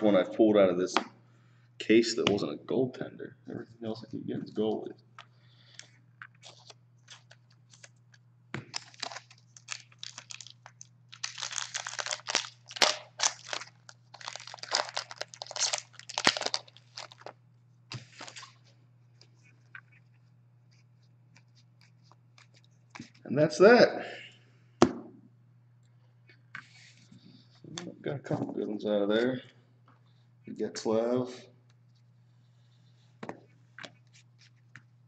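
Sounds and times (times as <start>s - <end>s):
foil wrappers crinkling and tearing: 8.7s - 18.6s.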